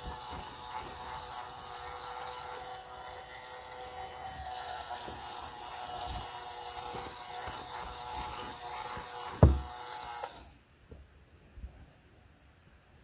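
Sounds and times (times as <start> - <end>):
toy iron electronic hiss: 0.0 - 10.5
loud thump: 9.4 - 9.7.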